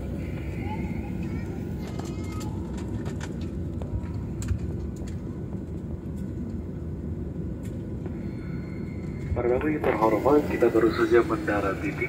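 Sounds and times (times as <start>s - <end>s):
engines and wheels rumbling: 0.0s - 12.0s
faint rattles: 1.0s - 6.6s.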